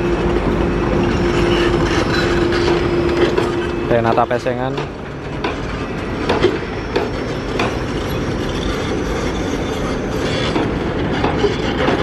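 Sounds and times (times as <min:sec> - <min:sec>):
heavy machinery diesel engines: 0:00.0 - 0:12.0
sharp metallic knocks: 0:01.2 - 0:08.9.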